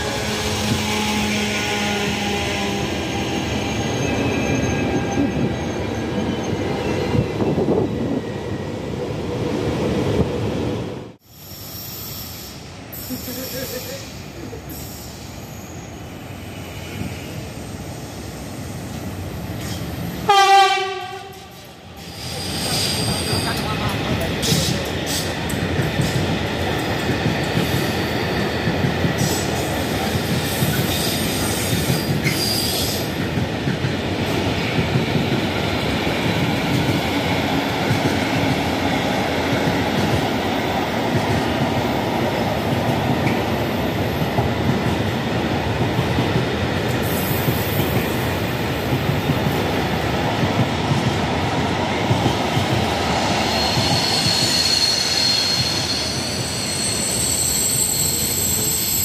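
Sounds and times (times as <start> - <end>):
train wheels rumbling over track: 0.0 - 59.0
high wheel squeal: 2.8 - 7.2, 14.8 - 17.5, 53.4 - 59.0.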